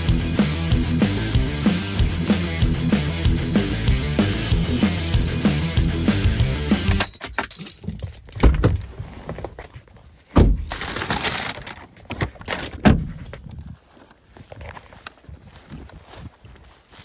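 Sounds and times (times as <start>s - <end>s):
heavy thunks: 10.3s - 10.7s.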